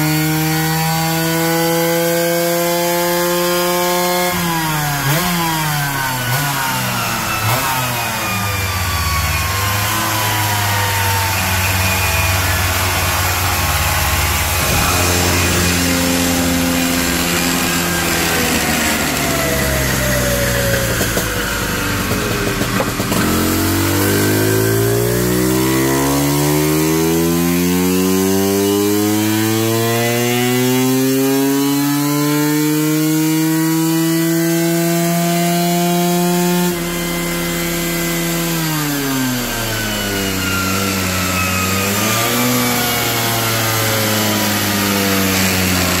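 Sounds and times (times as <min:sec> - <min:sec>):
two-stroke scooter engine revving: 0:00.0 - 0:46.0.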